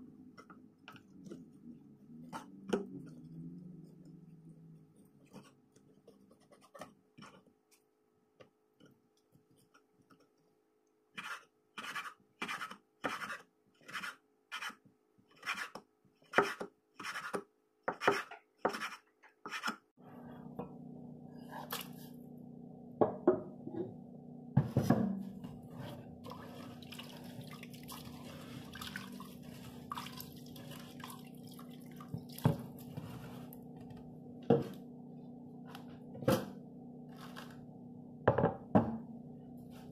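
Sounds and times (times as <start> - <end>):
steady low hum: 20.0 - 39.9.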